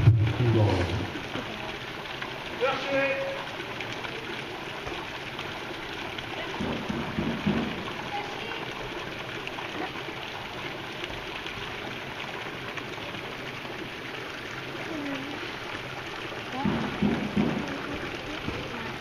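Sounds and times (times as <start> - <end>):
low rumble: 0.0 - 1.2
fountain water splashing into basin: 0.0 - 19.0.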